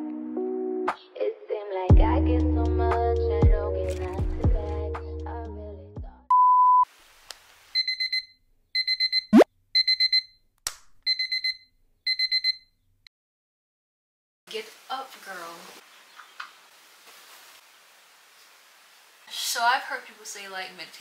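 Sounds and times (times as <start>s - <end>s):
background music: 0.0s - 1.2s, 1.9s - 6.0s
high alarm beeps: 7.8s - 10.3s, 11.1s - 12.6s
short steady beep: 7.8s - 10.3s, 11.1s - 12.7s.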